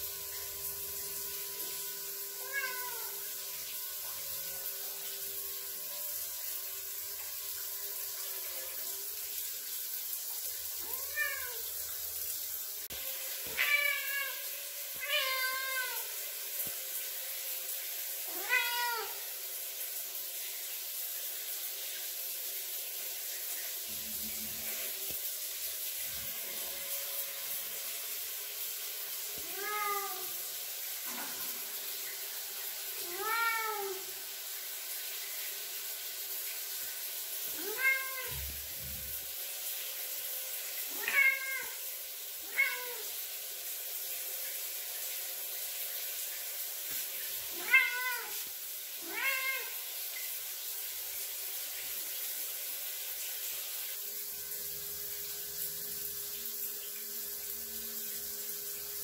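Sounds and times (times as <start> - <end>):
running shower hiss: 0.0 - 59.0
cat meowing: 2.4 - 3.2, 13.5 - 14.4, 15.0 - 16.1, 18.3 - 19.2, 29.4 - 30.3, 33.0 - 34.0, 37.6 - 38.5, 40.9 - 41.8, 42.4 - 43.0, 47.6 - 48.4, 49.0 - 49.7.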